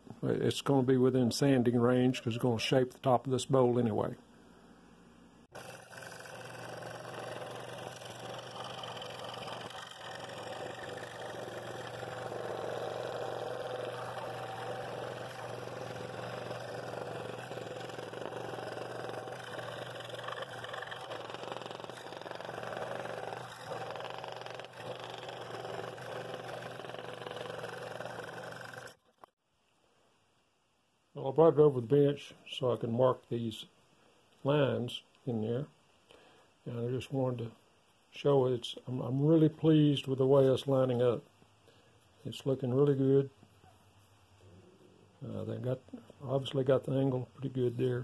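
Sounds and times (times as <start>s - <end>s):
saw blade buzzing through wood: 5.5s - 29.3s
scroll saw motor hum: 5.5s - 29.3s.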